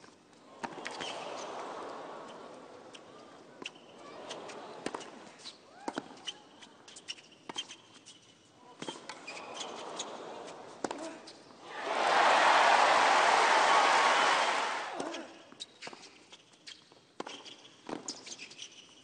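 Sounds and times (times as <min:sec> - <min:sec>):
shoes squeaking on court: 0:03.6 - 0:10.2, 0:15.1 - 0:19.0.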